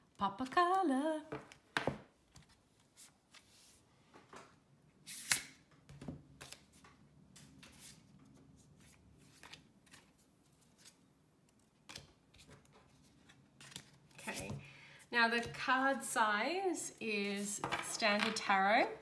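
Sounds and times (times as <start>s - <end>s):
cards rustling and clicking: 8.9s - 14.6s.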